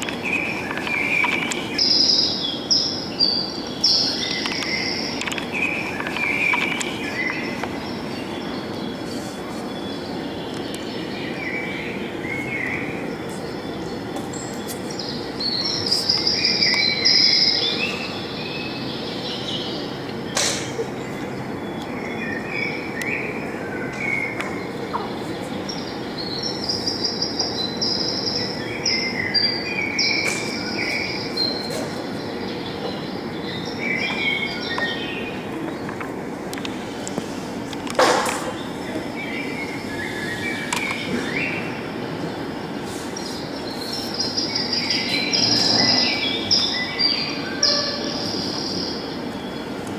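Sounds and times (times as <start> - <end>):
birds chirping in trills: 0.0 - 37.7, 38.4 - 49.9.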